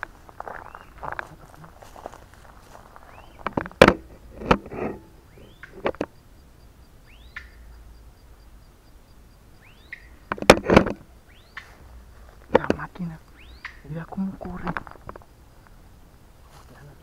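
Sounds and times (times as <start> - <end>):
footsteps in dry undergrowth: 0.0 - 4.4, 11.5 - 15.8, 16.4 - 17.0
birds giving harsh calls: 0.0 - 16.9.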